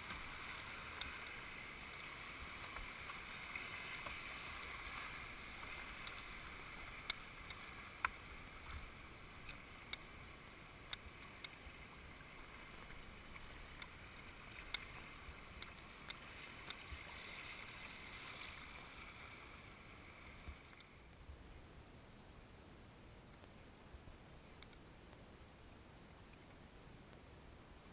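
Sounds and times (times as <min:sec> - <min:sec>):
river water rushing over riffles: 0:00.0 - 0:20.8.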